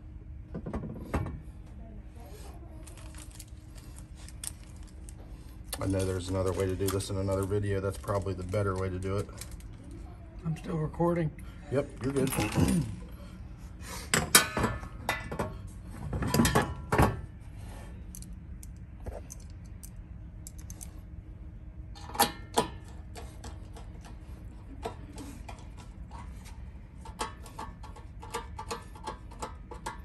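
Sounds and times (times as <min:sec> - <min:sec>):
steady low hum: 0:00.0 - 0:30.0
screwdriver and metal parts clattering: 0:12.0 - 0:12.9, 0:16.1 - 0:17.1, 0:22.0 - 0:30.0.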